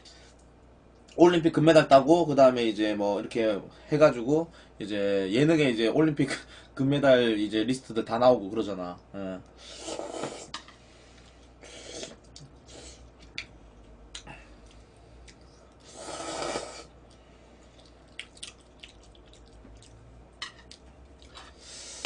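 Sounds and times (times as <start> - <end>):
noodles slurped: 15.8 - 16.9.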